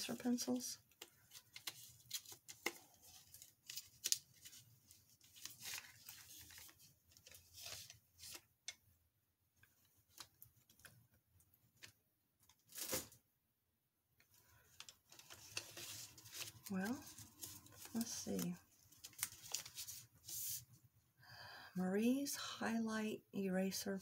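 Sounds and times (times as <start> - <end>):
packaging crinkling and tearing: 0.1 - 8.4, 12.5 - 13.2, 14.7 - 20.4.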